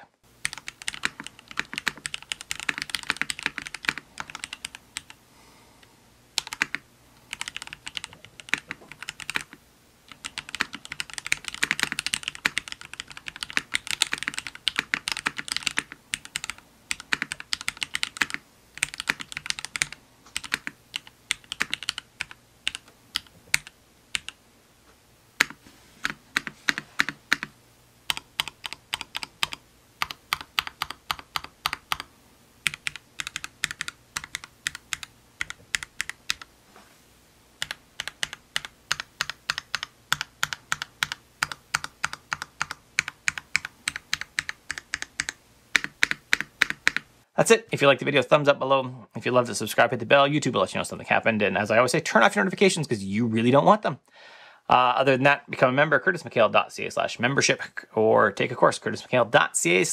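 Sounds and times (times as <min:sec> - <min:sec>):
mechanical keyboard clacks: 0:00.4 - 0:05.2, 0:06.4 - 0:24.3, 0:25.4 - 0:27.5, 0:28.1 - 0:32.1, 0:32.7 - 0:36.5, 0:37.6 - 0:47.0.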